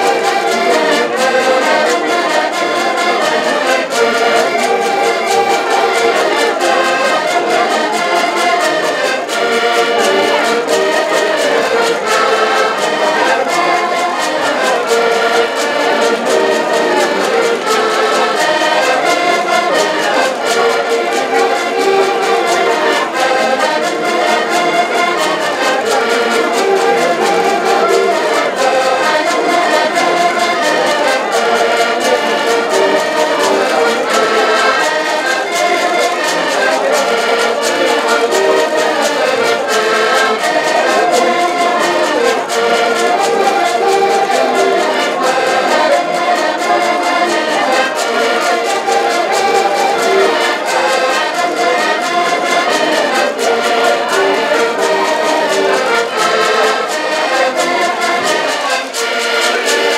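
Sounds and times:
button accordions playing folk tune: 0.0s - 59.9s
percussion beat: 2.1s - 39.1s.

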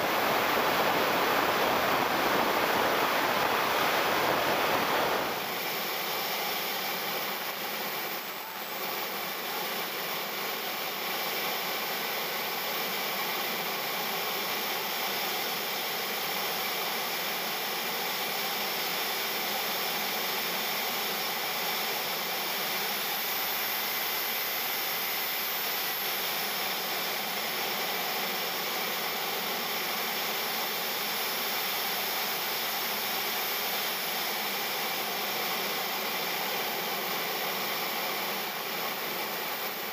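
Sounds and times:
air rushing over airframe: 0.0s - 6.2s
faint high whine: 0.0s - 39.9s
model jet turbine running: 0.0s - 39.9s.

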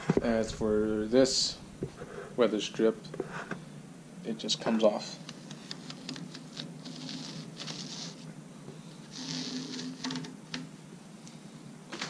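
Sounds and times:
rubber strip rustling and scraping: 9.1s - 10.3s.

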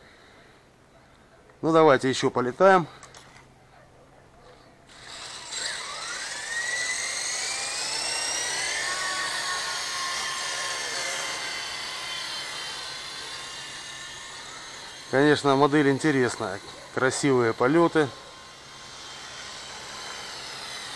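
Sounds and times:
rc helicopter rotor whine: 4.5s - 20.9s.

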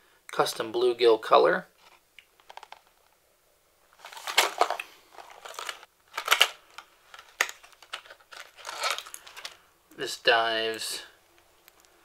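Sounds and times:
plastic and cardboard crackling: 1.8s - 3.1s, 4.0s - 9.6s.

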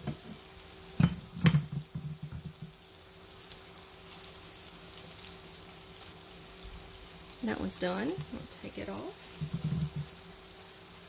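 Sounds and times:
sausage sizzling in a pan: 0.0s - 11.0s
knocks against pan: 1.0s - 2.8s.

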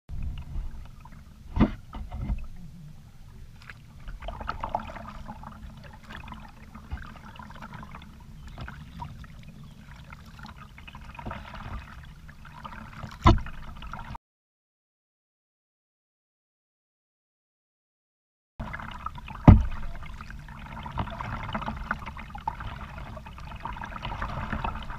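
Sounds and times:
paddle splashing water: 0.2s - 14.2s, 18.6s - 24.9s
paddle knocking plastic kayak: 3.6s - 9.2s, 13.1s - 13.6s, 19.3s - 20.2s.

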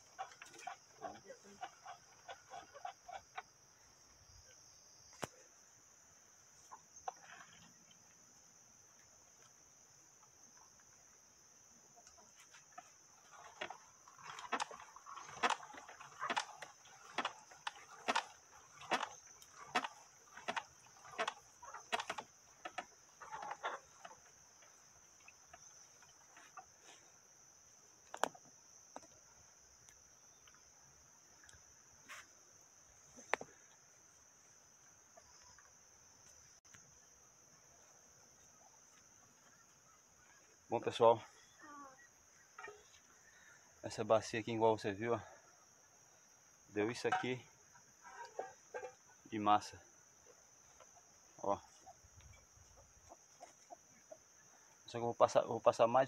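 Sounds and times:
insects buzzing: 0.0s - 56.0s
corn mill crunching squeak: 13.2s - 24.8s.

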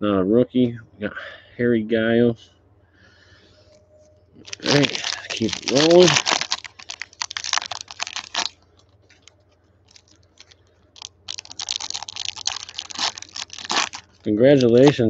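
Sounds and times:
foil wrapper crinkling: 4.4s - 15.0s
cards rustling: 4.5s - 8.5s, 9.9s - 15.0s.

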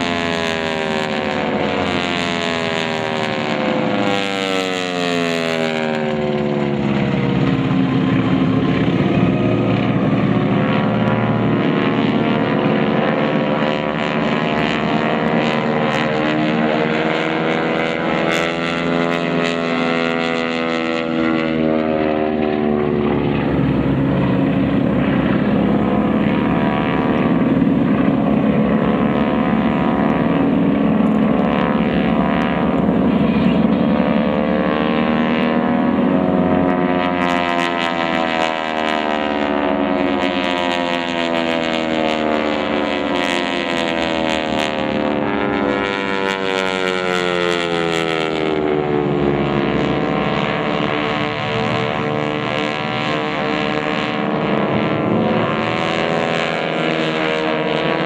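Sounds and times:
propeller planes droning overhead: 0.0s - 58.0s.

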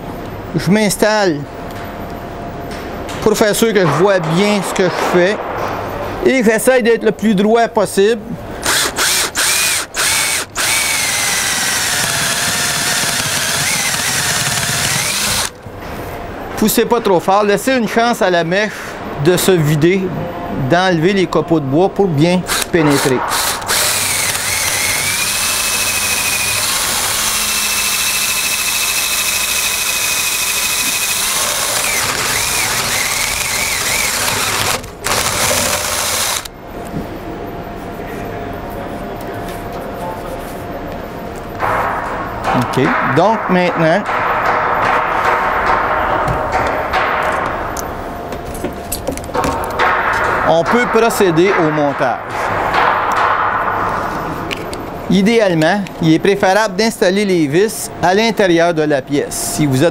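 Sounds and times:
cordless drill boring into wood: 8.6s - 15.5s, 23.3s - 36.5s.

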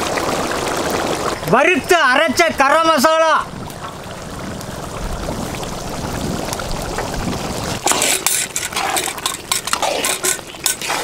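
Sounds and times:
curry bubbling in a pan: 0.0s - 1.5s, 3.5s - 11.0s
food crackling and spitting: 5.5s - 11.0s.

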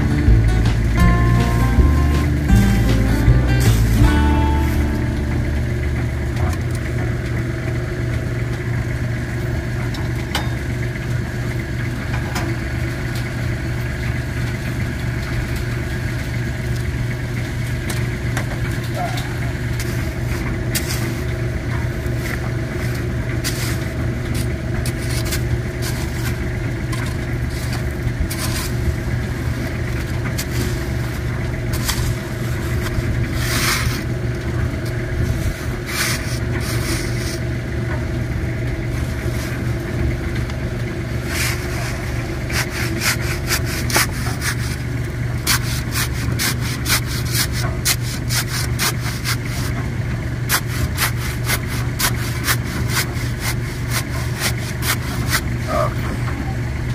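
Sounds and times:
low engine hum: 0.0s - 56.9s
shovel scraping into gritty soil: 20.7s - 21.3s, 22.2s - 26.4s, 27.0s - 28.8s, 30.3s - 34.1s, 35.3s - 37.4s, 41.2s - 49.8s, 50.5s - 55.6s.

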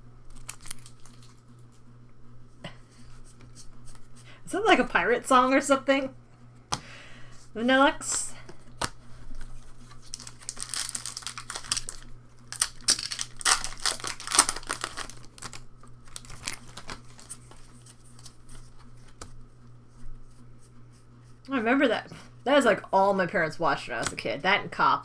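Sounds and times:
faint steady hum: 0.0s - 25.0s
foil wrappers crinkling and tearing: 0.2s - 1.5s, 8.7s - 19.2s.

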